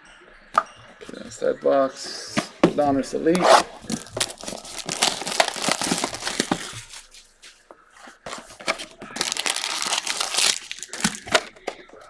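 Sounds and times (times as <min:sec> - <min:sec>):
packaging crinkling and tearing: 0:03.8 - 0:07.2, 0:08.3 - 0:11.6.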